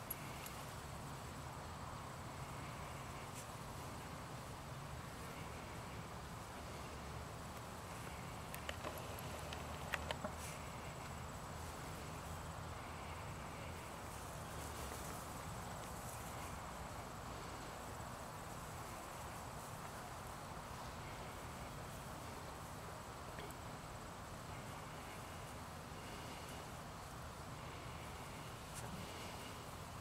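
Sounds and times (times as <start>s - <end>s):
outdoor background noise: 0.0s - 30.0s
quick clicks: 8.5s - 10.3s.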